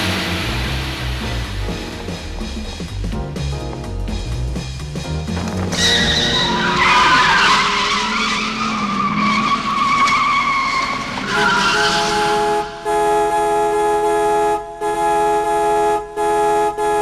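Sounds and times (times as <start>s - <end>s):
car tyres squealing: 5.4s - 13.1s
car horn sounding: 10.8s - 17.0s.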